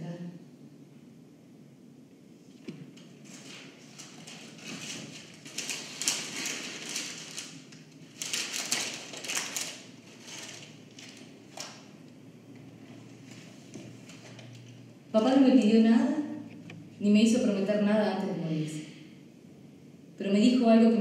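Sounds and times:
paper rustling and crackling: 2.7s - 12.0s.

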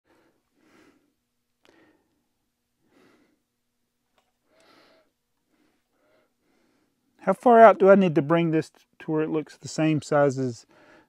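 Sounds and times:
faint breaths: 0.1s - 3.6s, 4.4s - 7.2s, 10.6s - 11.0s.

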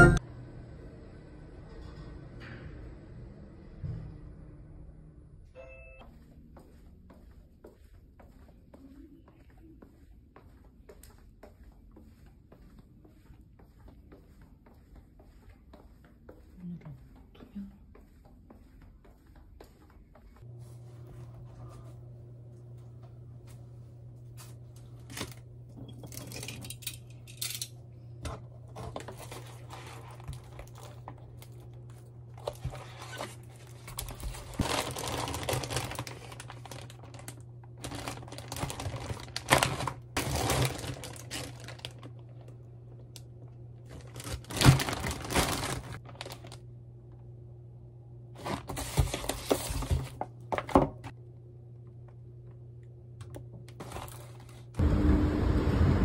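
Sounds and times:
plastic packaging crinkling: 28.8s - 46.6s, 48.4s - 50.3s.

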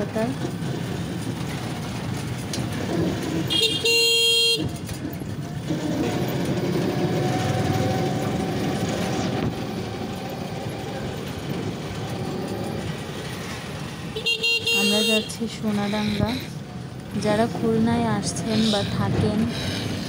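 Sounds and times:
traffic noise with low rumble: 0.0s - 20.0s
vehicle horn: 3.5s - 4.8s, 14.2s - 15.4s.

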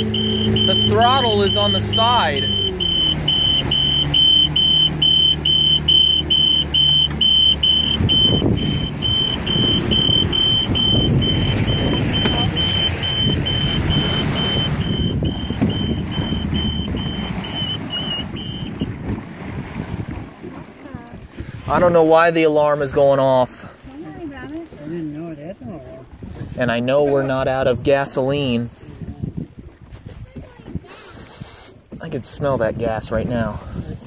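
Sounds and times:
fast high alarm beeps: 0.0s - 18.7s
boat engine running: 0.0s - 34.0s
rush of wind and water: 0.0s - 34.0s.

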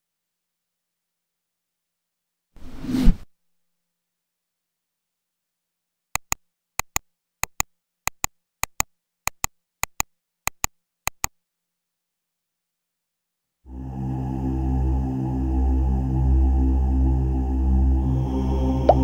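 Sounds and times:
quick double clicks: 6.2s - 11.4s.

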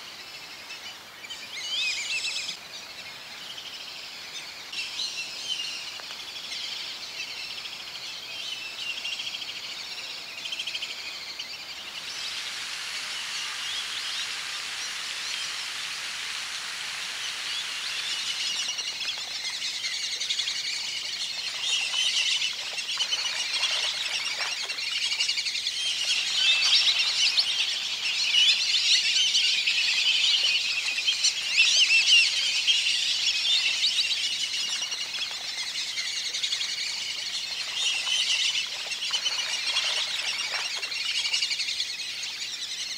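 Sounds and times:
birds chirping and whistling: 17.2s - 42.9s.

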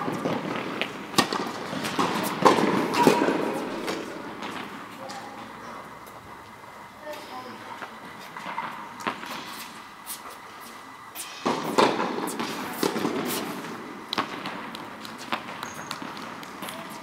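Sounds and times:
tennis balls struck by rackets: 0.0s - 5.4s, 11.2s - 17.0s.

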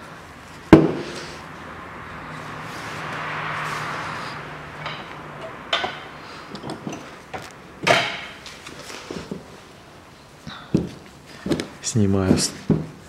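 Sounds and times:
rushing noise: 0.0s - 8.5s.

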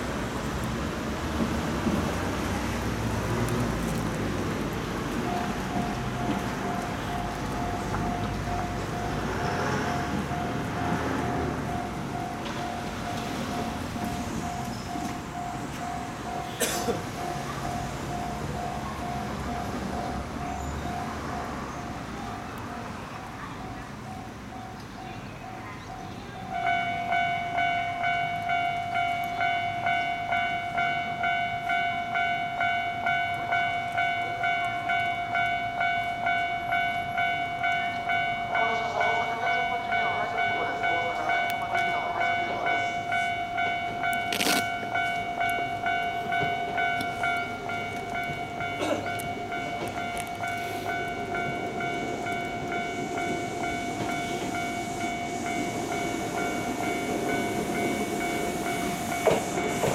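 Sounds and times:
electronic railway warning bell: 4.4s - 59.9s
electric train running: 26.1s - 59.9s.

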